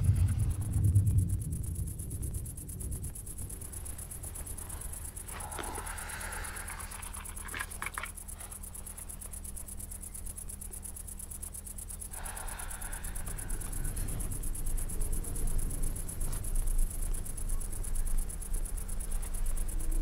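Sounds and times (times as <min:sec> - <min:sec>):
crickets chirping: 0:00.0 - 0:20.0
low hum: 0:00.0 - 0:20.0
rustle with small clicks: 0:03.0 - 0:12.1.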